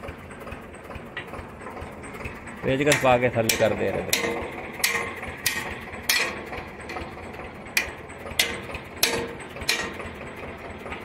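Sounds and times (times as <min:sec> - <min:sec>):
hammer striking steel: 0:02.7 - 0:10.2.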